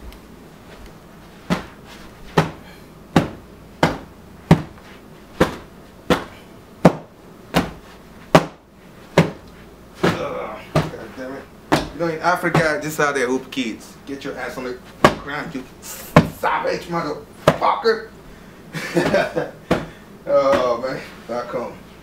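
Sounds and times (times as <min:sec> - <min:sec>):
cloth slapping: 0:00.7 - 0:12.8, 0:14.9 - 0:15.3, 0:19.0 - 0:20.8.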